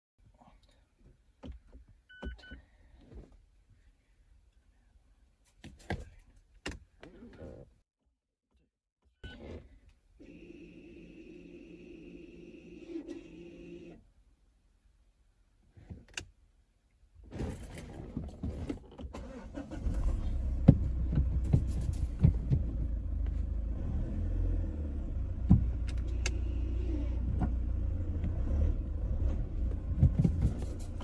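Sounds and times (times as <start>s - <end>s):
car engine starting and idling: 19.1s - 31.0s.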